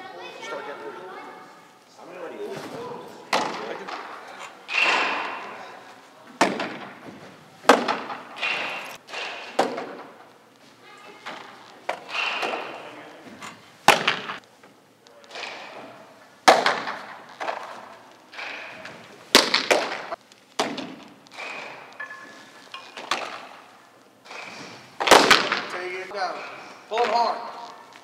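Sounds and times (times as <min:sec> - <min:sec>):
baseballs smacking into gloves: 0:03.3 - 0:05.7, 0:06.3 - 0:10.3, 0:11.3 - 0:14.4, 0:15.2 - 0:22.1, 0:22.8 - 0:25.8.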